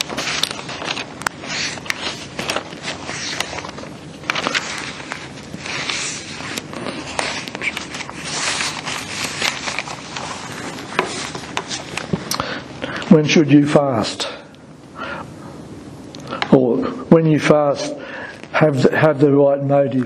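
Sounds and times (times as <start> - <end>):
paper rustling and crinkling: 0.0 - 12.5.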